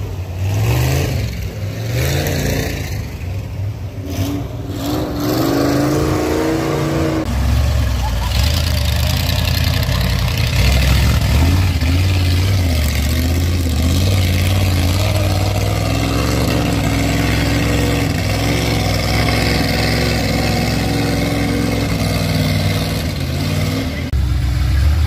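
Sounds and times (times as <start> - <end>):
truck engine revving: 0.0 - 25.0
mud and water splashing: 5.3 - 25.0.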